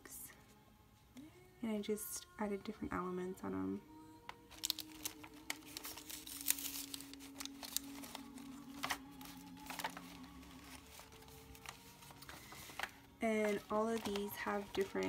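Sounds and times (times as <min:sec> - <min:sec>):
faint record player music: 0:00.0 - 0:15.0
pages turning: 0:04.5 - 0:15.0
paper rustling and crinkling: 0:04.5 - 0:15.0.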